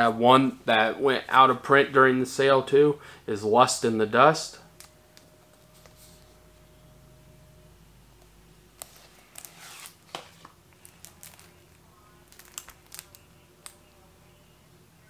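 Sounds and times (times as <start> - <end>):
plastic wrap crinkling: 8.8 - 13.8.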